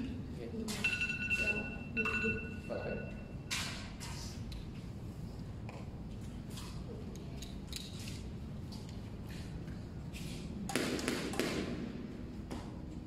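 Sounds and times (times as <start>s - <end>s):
squash ball hitting racket and walls: 10.2s - 13.0s.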